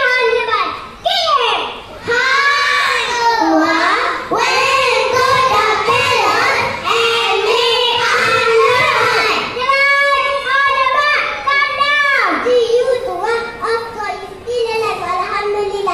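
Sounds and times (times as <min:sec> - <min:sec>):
children singing in unison: 0:02.0 - 0:09.6.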